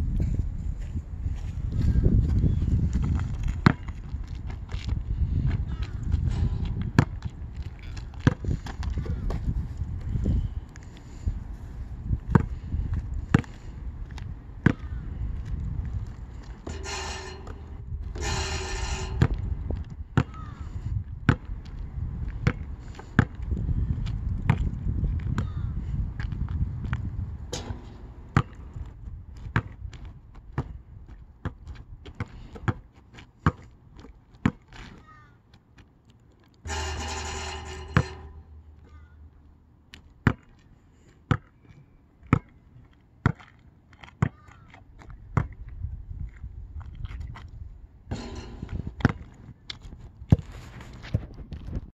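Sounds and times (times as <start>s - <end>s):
steady low rumble: 0.0s - 22.8s, 47.7s - 49.4s
basketball bouncing on asphalt: 3.0s - 9.7s, 12.2s - 15.6s, 16.3s - 35.3s, 40.0s - 40.7s, 41.3s - 42.6s, 43.2s - 44.7s, 45.3s - 45.7s, 48.1s - 50.5s.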